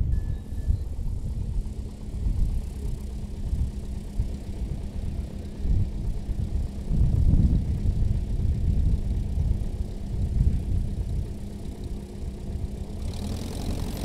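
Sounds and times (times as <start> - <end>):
light aircraft engine idling: 0.0 - 14.0.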